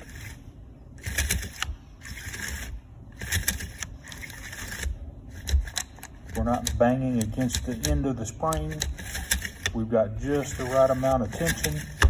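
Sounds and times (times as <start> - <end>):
recoil pulley clicking: 1.0 - 9.8
starter rope rasping out: 1.0 - 12.0.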